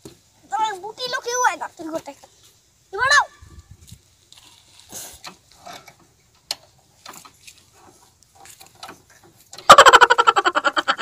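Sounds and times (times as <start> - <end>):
motorcycle parts clicking and rattling: 4.3 - 9.7.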